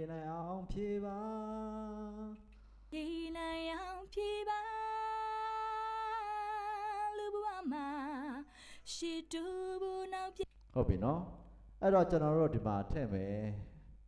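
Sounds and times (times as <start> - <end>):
solo singing voice: 0.0 - 10.4.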